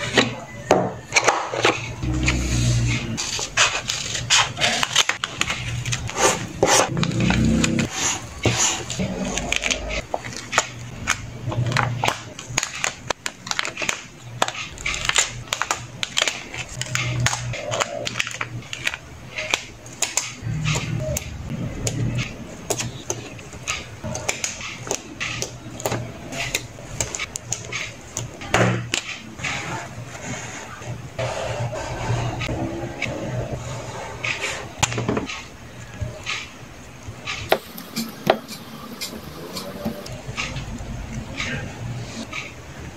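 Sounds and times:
plastic sticker sheets crackling: 0:01.6 - 0:29.2.

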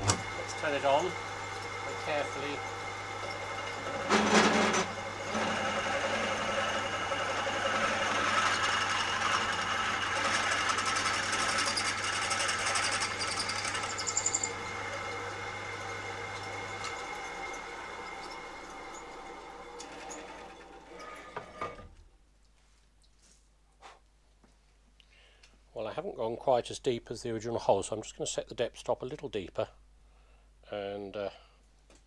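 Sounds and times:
pillar drill cutting metal: 0:00.0 - 0:21.8.

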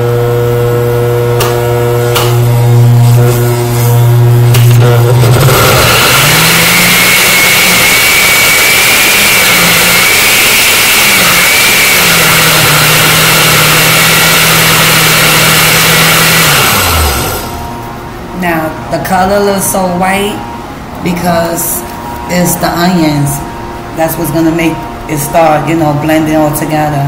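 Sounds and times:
blender motor whirring: 0:00.0 - 0:17.8.

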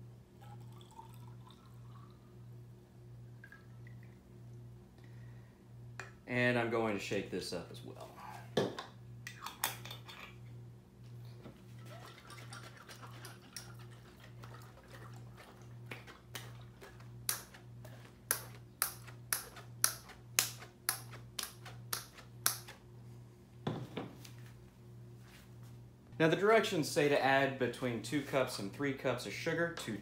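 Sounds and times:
liquid sloshing in a glass jug: 0:00.4 - 0:02.3, 0:11.6 - 0:17.0.

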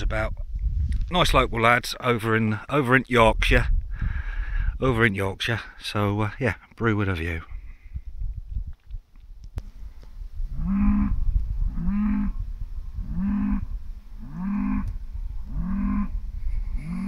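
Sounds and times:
farm animal calling: 0:10.5 - 0:12.4, 0:13.0 - 0:17.0.

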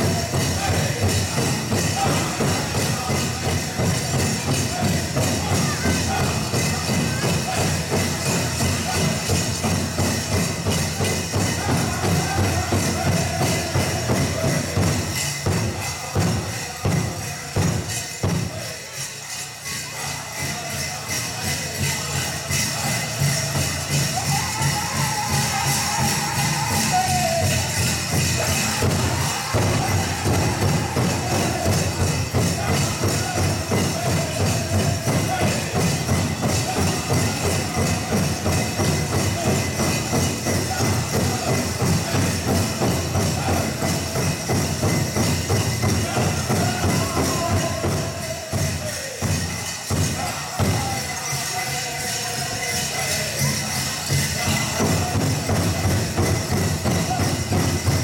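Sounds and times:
group singing: 0:00.0 - 0:18.7, 0:20.7 - 0:58.0
big drum steady beat: 0:00.0 - 0:18.9, 0:20.5 - 0:58.0
bells jingling: 0:00.0 - 0:58.0.

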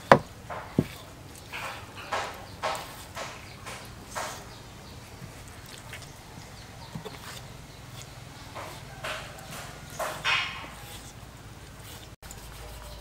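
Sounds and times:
knife knocking on wooden board: 0:00.0 - 0:01.0, 0:08.0 - 0:11.0
knife scraping meat: 0:00.0 - 0:13.0.

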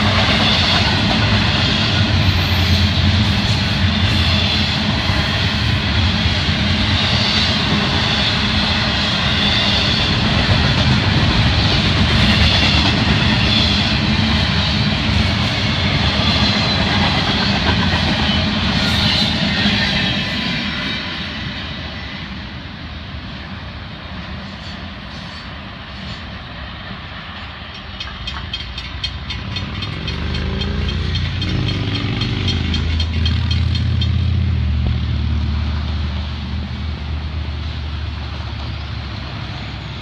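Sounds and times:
train wheels on rails: 0:00.0 - 0:40.0
motorcycle and car engines: 0:29.3 - 0:39.4.

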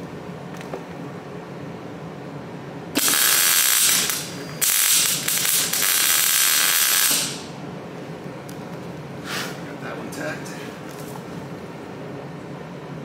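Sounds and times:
arc welding crackling: 0:03.0 - 0:07.6.

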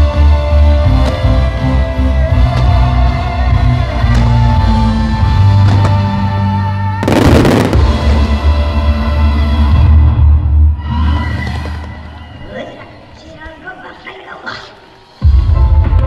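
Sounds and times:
background music: 0:00.0 - 0:16.0
faint firework bangs: 0:05.5 - 0:06.3, 0:07.0 - 0:08.5
firework crackle: 0:07.0 - 0:08.6.

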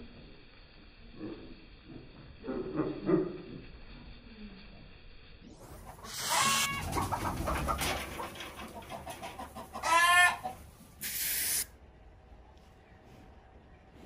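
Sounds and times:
chickens clucking: 0:05.5 - 0:10.9
chicken squawk: 0:05.6 - 0:10.6
aerosol spray hiss: 0:06.1 - 0:06.7, 0:11.0 - 0:11.7.

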